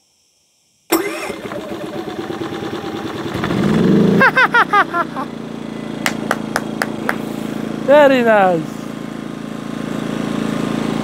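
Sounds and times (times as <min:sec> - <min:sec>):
generator engine running: 0:00.9 - 0:11.0
man laughing: 0:04.1 - 0:05.4.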